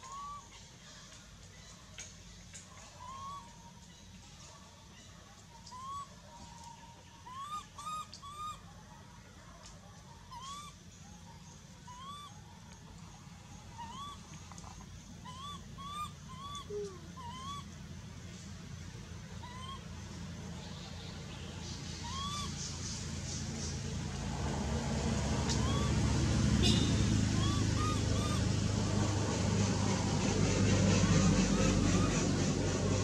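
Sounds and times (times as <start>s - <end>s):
baby monkey coo calls: 0.0s - 0.6s, 2.7s - 3.8s, 5.6s - 8.7s, 10.2s - 10.8s, 11.8s - 12.5s, 13.6s - 17.8s, 19.3s - 20.0s, 21.6s - 22.9s, 25.4s - 28.8s.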